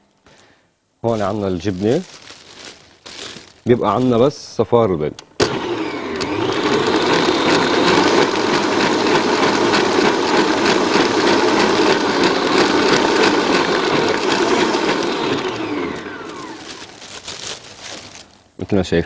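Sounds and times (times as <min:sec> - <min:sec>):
electric stand mixer running: 0:05.4 - 0:16.9.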